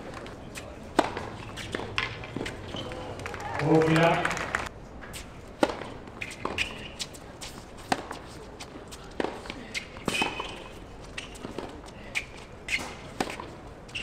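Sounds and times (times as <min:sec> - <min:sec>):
racket hitting tennis ball: 0:00.0 - 0:04.2, 0:05.1 - 0:14.0
shoes squeaking on court: 0:00.0 - 0:04.2, 0:05.1 - 0:14.0
ball bouncing: 0:01.0 - 0:03.1.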